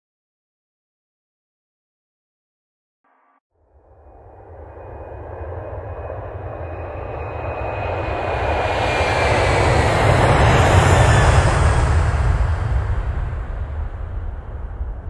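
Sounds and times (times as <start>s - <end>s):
high whine gliding down: 3.6s - 15.0s
deep rushing rumble: 3.8s - 15.0s.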